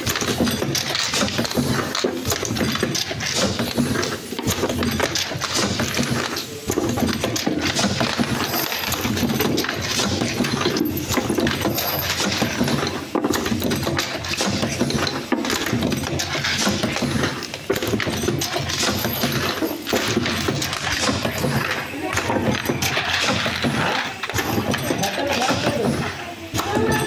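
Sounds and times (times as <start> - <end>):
machine clicks: 0.0 - 27.0
steady machine noise: 0.0 - 27.0
glass vials clinking: 4.4 - 25.8.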